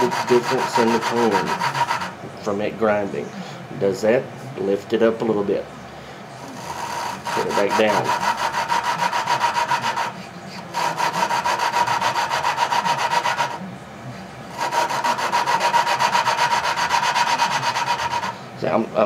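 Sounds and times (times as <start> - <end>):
gritty grinding of valve lapping: 0.0 - 2.2, 6.6 - 10.1, 10.7 - 13.6, 14.5 - 18.4.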